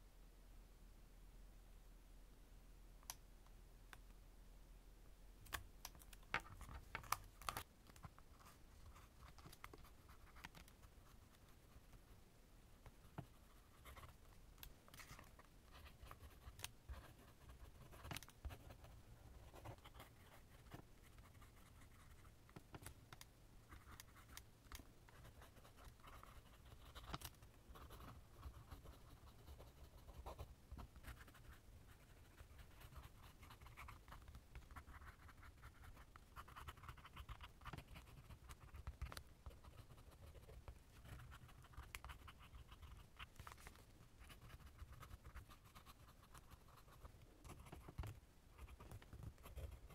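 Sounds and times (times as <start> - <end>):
pen nib scratching on paper: 15.0 - 23.0, 25.1 - 43.6, 44.2 - 49.9.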